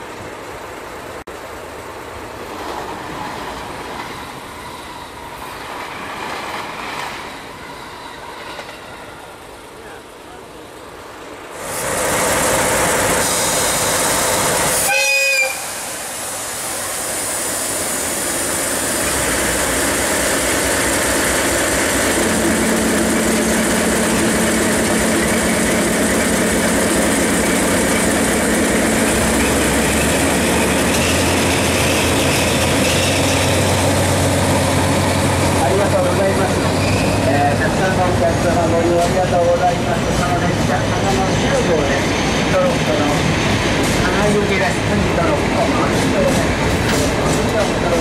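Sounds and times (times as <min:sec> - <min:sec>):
locomotive whistle blast: 0:14.8 - 0:15.8.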